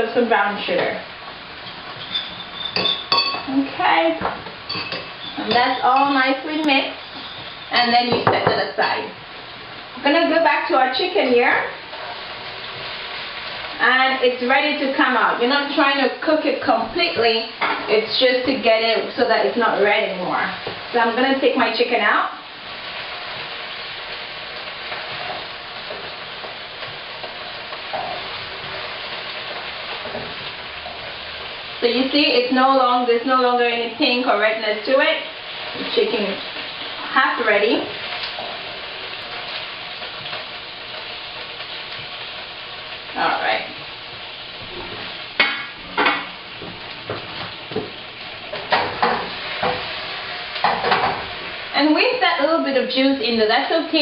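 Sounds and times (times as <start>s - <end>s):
chicken sizzling in hot oil: 0.0s - 54.0s
gas burner hiss: 0.0s - 54.0s
metal tongs clanking: 1.7s - 3.5s, 4.7s - 7.7s.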